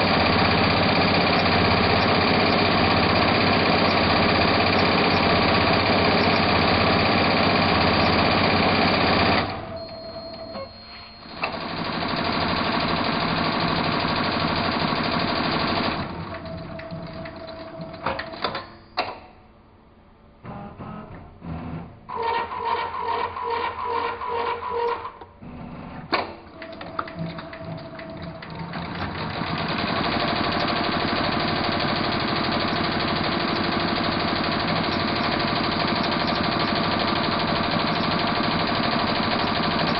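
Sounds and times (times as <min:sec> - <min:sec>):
sharp machine clicks: 0:00.0 - 0:09.6, 0:11.3 - 0:19.1, 0:26.1 - 0:39.9
embroidery machine stitching: 0:00.0 - 0:10.5, 0:11.4 - 0:18.6, 0:22.1 - 0:25.1, 0:26.2 - 0:39.9.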